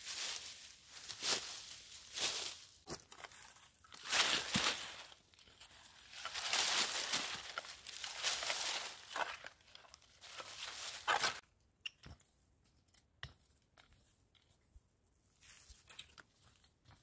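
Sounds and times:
dry leaves and twigs rustling: 0.0 - 11.4.

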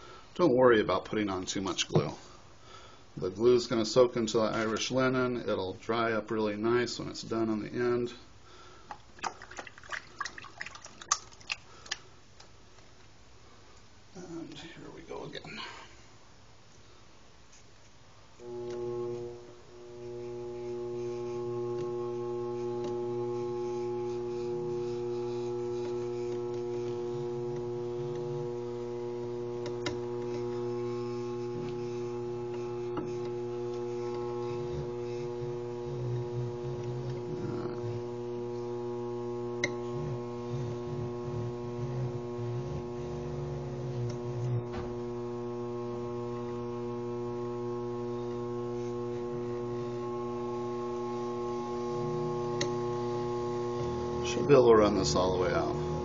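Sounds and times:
lathe motor humming: 18.4 - 56.0.

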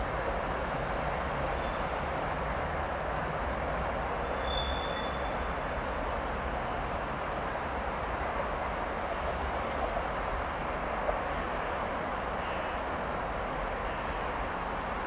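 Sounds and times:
freight train rolling: 0.0 - 15.0.

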